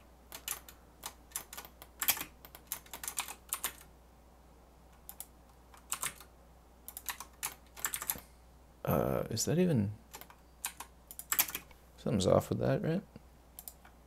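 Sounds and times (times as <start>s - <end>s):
computer keyboard keys clicking: 0.3s - 3.9s, 5.0s - 6.3s, 6.9s - 8.2s, 10.1s - 11.7s, 13.6s - 13.9s.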